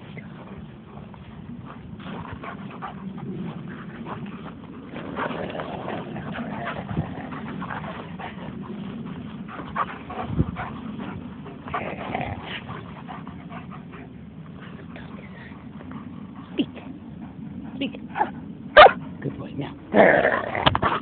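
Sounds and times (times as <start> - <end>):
steady rustle: 0.0 - 21.0.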